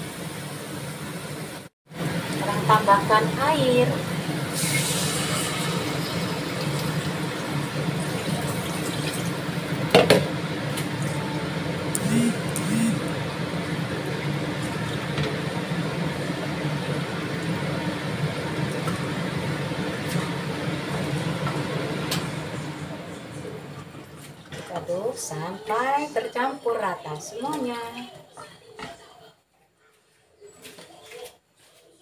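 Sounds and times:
water pouring into a pot: 4.5 - 9.7
steady low hum: 11.6 - 24.1.

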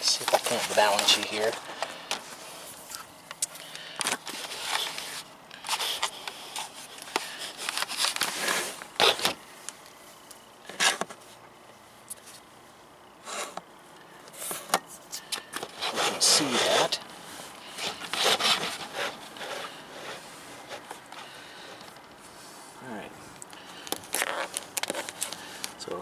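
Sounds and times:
handling clicks and scrapes: 0.0 - 9.9, 10.6 - 11.4, 14.3 - 22.3, 23.3 - 25.8.

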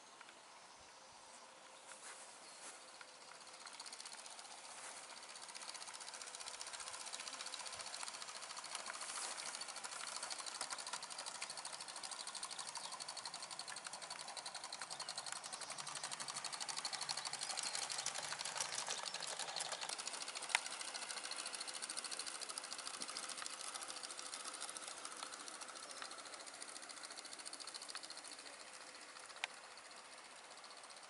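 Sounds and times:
model train clattering: 3.0 - 31.0.

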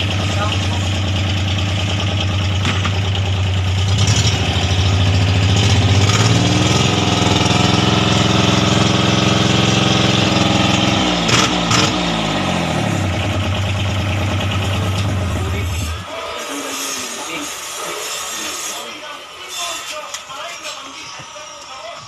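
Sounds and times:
engine knocks: 0.0 - 16.1
diesel engine revving: 0.0 - 19.4.

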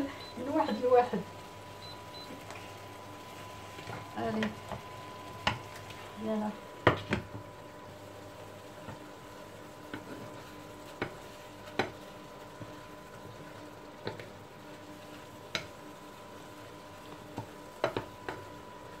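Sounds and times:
faint sizzling: 0.0 - 19.0
wood tapping against pan: 3.8 - 5.7, 10.9 - 12.0, 15.5 - 15.7, 17.3 - 18.5
wooden spatulas stirring in pan: 8.7 - 18.5.

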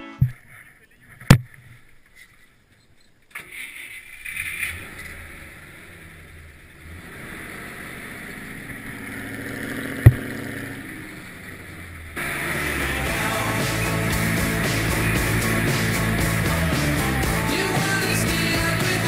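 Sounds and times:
vehicle engine running: 4.3 - 19.0.

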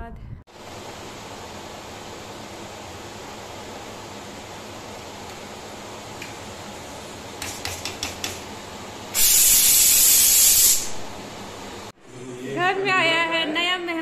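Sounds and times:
pressure cooker hissing steam: 9.1 - 11.0.

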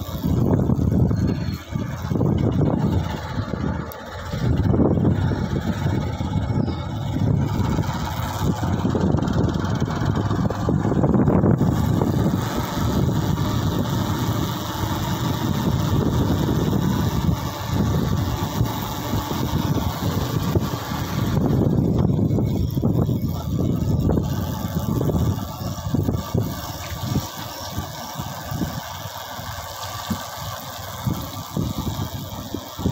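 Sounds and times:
road and wind rumble: 0.0 - 32.9
vehicle engine running: 0.0 - 32.9.

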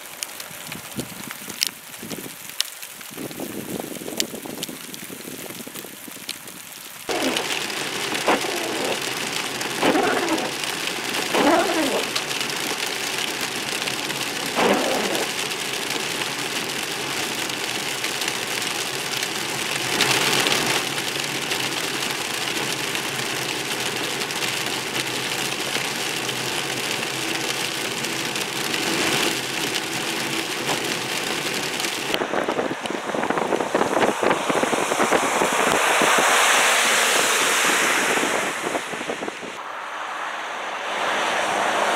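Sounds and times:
freezing rain hitting car windshield: 0.0 - 37.6
road noise inside car: 7.1 - 41.9
steady rushing noise: 30.3 - 41.9.

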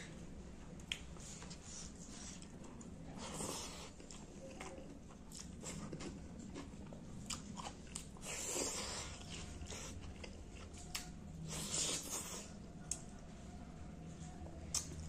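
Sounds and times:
chewing with wet mouth clicks: 0.8 - 1.2, 2.4 - 13.1, 14.6 - 15.0.

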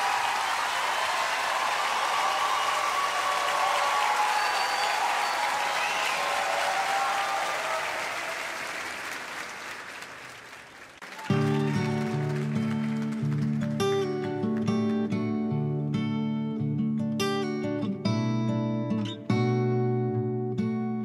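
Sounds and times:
audience applauding and cheering: 0.0 - 15.0
acoustic guitar strumming: 11.3 - 21.0.

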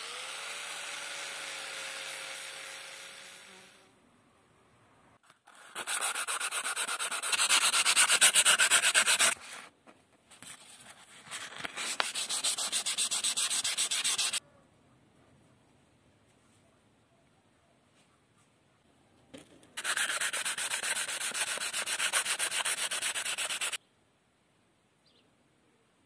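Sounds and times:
abrasive block rubbing steel bar: 5.7 - 9.5, 11.9 - 14.4
angle grinder sanding hiss: 11.8 - 14.4, 19.8 - 23.8.

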